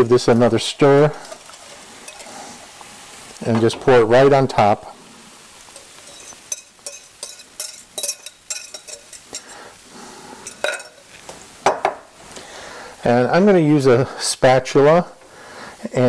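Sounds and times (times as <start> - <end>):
whisk clinking against a bowl: 1.3 - 2.3, 5.8 - 9.6, 10.4 - 11.0.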